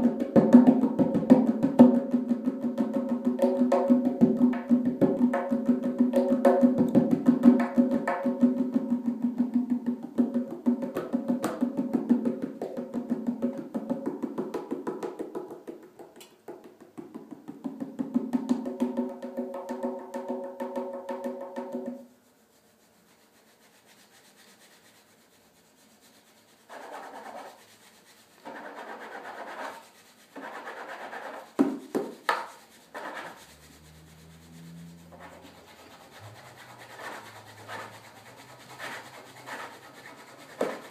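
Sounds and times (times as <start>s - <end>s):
goblet drum finger strokes: 21.6s - 40.9s
rubbing and scraping: 22.1s - 40.9s.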